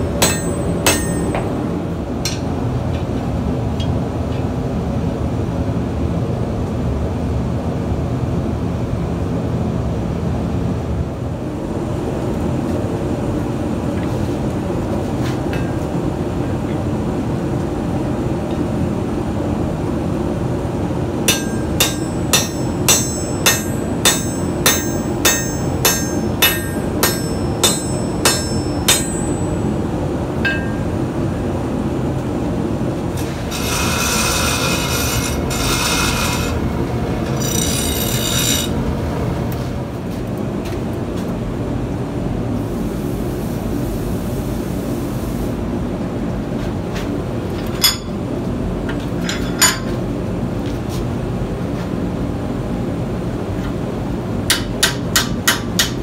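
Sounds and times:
hammer striking steel on anvil: 0:00.0 - 0:02.6, 0:21.3 - 0:29.8, 0:30.4 - 0:31.0, 0:37.3 - 0:38.8, 0:54.5 - 0:56.0
workshop rumble: 0:00.0 - 0:05.0, 0:11.3 - 0:44.8, 0:45.8 - 0:56.0
grinder cutting steel: 0:21.3 - 0:29.5, 0:33.2 - 0:36.6, 0:37.2 - 0:38.8.

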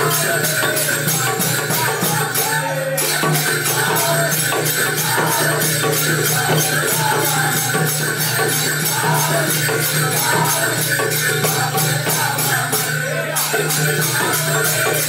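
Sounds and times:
jingling percussion: 0:00.0 - 0:15.0.

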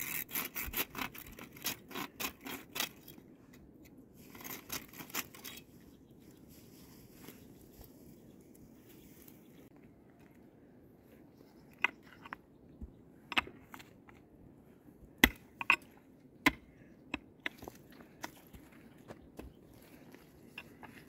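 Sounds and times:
pick striking stony soil: 0:15.1 - 0:18.6.

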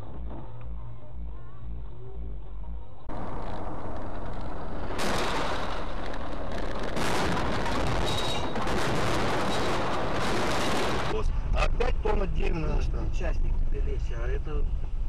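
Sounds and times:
road and wind noise: 0:01.7 - 0:15.0
car crashing and tumbling: 0:03.1 - 0:11.2.

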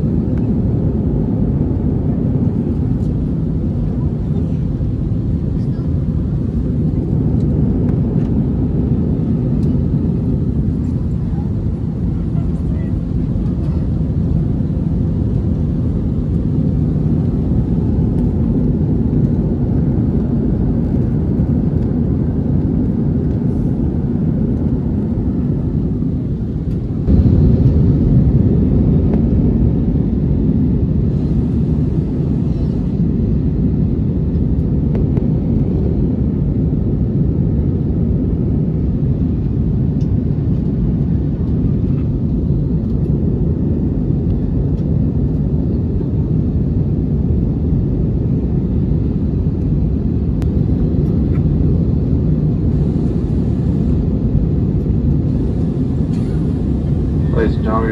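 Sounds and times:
airliner engines and airflow rumble: 0:00.0 - 0:57.9.

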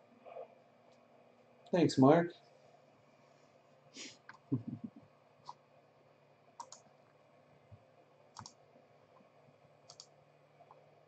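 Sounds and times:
computer mouse clicks: 0:06.6 - 0:06.9, 0:08.4 - 0:08.6, 0:09.9 - 0:10.1.

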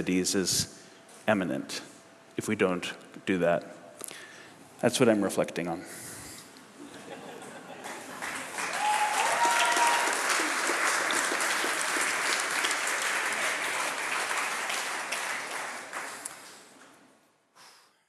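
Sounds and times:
audience applauding: 0:07.8 - 0:16.8.

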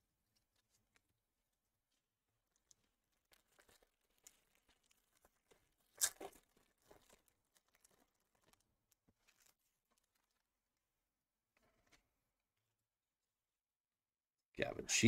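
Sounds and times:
wrapper crinkling and tearing: 0:02.6 - 0:10.4.

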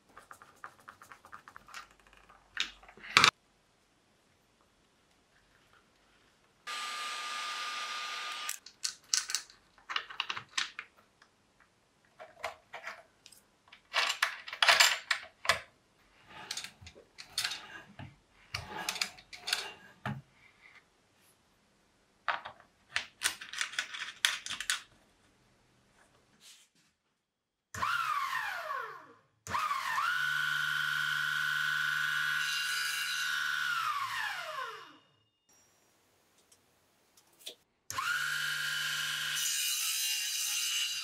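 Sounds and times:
metal parts clicking and rattling: 0:08.5 - 0:10.9, 0:12.2 - 0:15.6, 0:16.4 - 0:17.8, 0:18.6 - 0:19.8, 0:23.2 - 0:24.9.

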